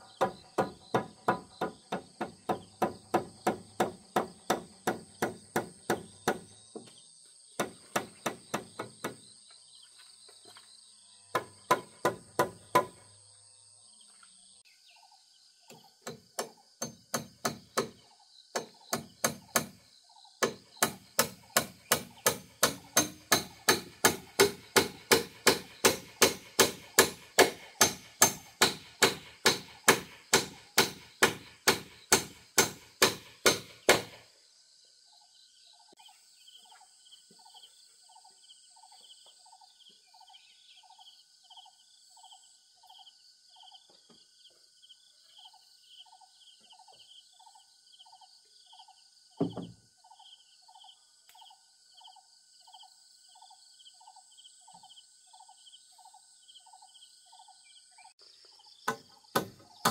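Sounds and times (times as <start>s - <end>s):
hammer striking wood: 0.0s - 6.9s, 7.6s - 9.2s, 11.3s - 13.0s, 15.8s - 19.8s, 20.4s - 34.2s, 49.4s - 49.8s, 58.9s - 59.9s
thump: 49.4s - 49.8s.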